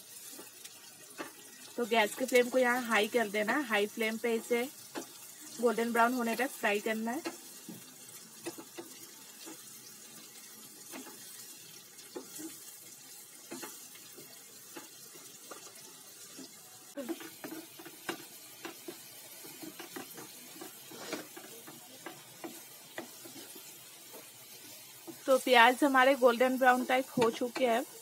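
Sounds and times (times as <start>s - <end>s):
onions sizzling in oil: 0.0s - 28.0s
wooden spatula stirring: 7.2s - 28.0s.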